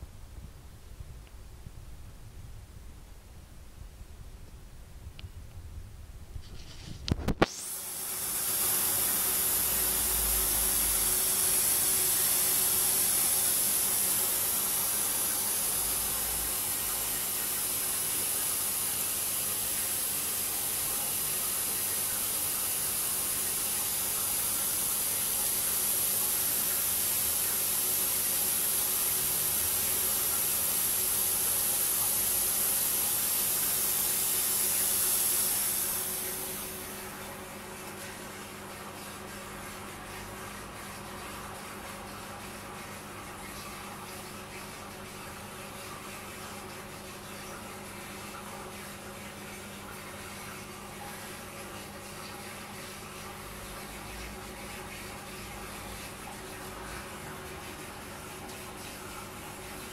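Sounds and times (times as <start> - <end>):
hiss of water mist spraying: 6.6 - 37.2.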